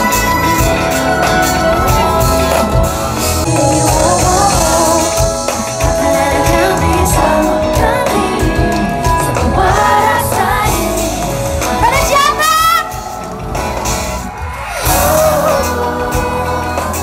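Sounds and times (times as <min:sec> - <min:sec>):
woman singing: 0:00.0 - 0:13.0
live pop band playing: 0:00.0 - 0:17.0.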